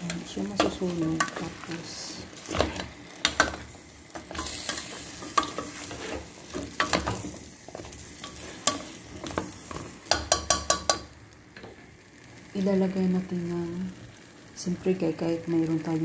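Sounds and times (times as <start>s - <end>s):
faint sizzle of cooking: 0.0s - 16.0s
spoon knocking and scraping pot: 4.2s - 11.1s.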